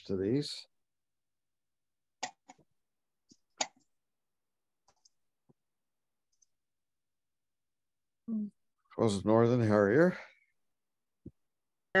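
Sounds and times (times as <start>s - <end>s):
computer mouse clicking: 2.2s - 2.6s, 3.4s - 3.9s.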